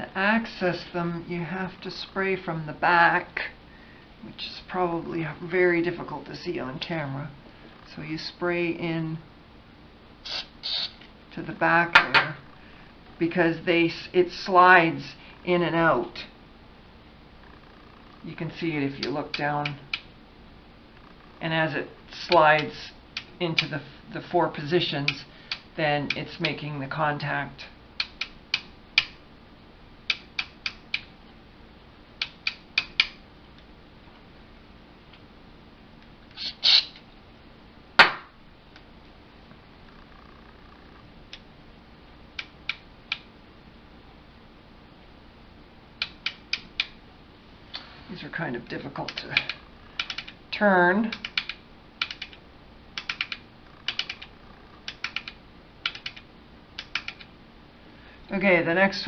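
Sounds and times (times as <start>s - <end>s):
rotary switches clicking: 28.0s - 29.2s, 30.1s - 31.1s, 32.2s - 33.2s, 46.0s - 47.0s, 49.0s - 50.4s, 51.1s - 52.4s, 53.0s - 57.3s.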